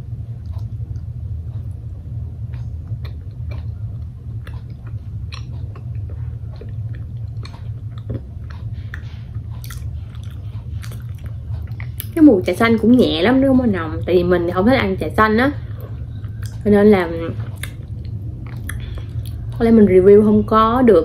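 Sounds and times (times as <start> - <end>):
steady low hum: 0.0 - 21.0
person chewing: 2.4 - 12.2, 15.7 - 16.6, 17.4 - 19.6
wet mouth clicks and smacks: 4.4 - 8.3, 17.5 - 19.4.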